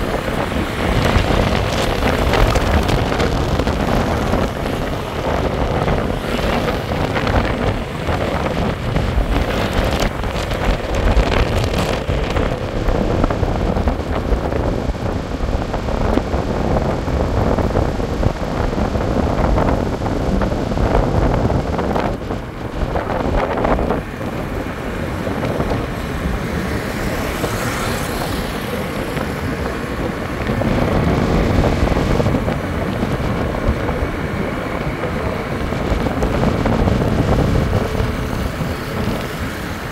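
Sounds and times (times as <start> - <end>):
vehicle traffic rumble: 0.0 - 39.9
wind buffeting microphone: 0.0 - 39.9.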